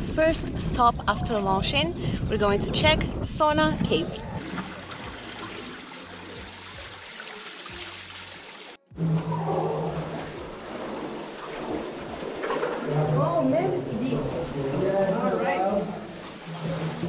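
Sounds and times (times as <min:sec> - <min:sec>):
water trickling over rocks: 0:04.4 - 0:08.9.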